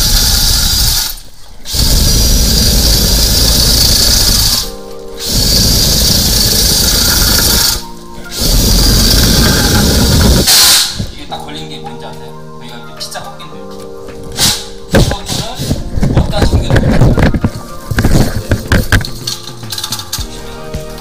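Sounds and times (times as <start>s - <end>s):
drain-cleaning machine running: 0.0s - 10.5s.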